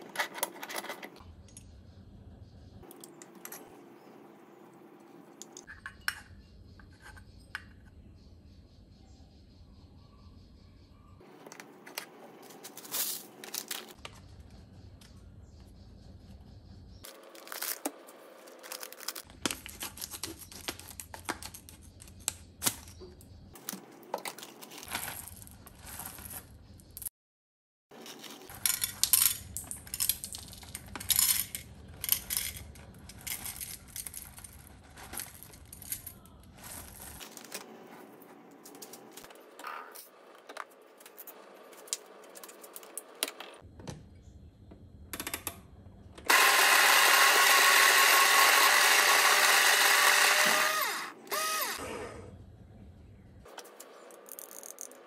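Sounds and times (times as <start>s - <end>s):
paper bag rustling: 17.1s - 20.7s, 36.5s - 39.3s
coffee beans rattling into cup: 28.0s - 37.6s
metal parts clinking: 28.0s - 37.6s
electric coffee grinder whirring: 46.3s - 52.0s.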